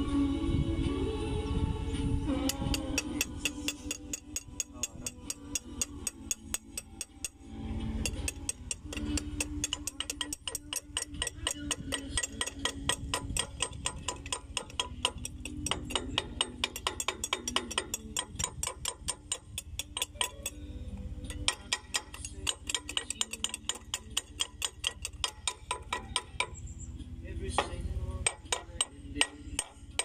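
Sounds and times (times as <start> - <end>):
low steady hum: 0.0 - 30.0
rapid mechanical ticking: 8.0 - 20.6, 21.4 - 26.6.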